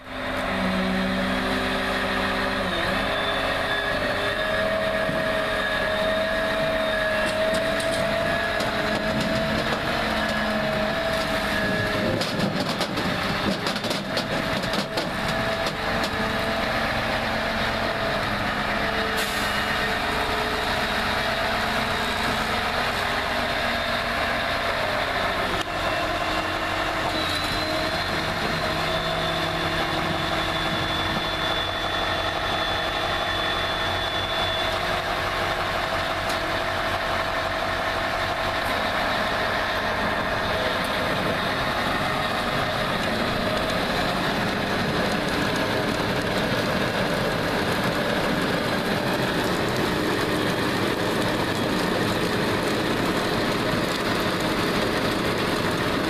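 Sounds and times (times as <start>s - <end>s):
conveyor noise: 0.0s - 56.0s
diesel engine running: 0.0s - 56.0s
machine whines: 0.3s - 12.2s, 25.3s - 36.4s.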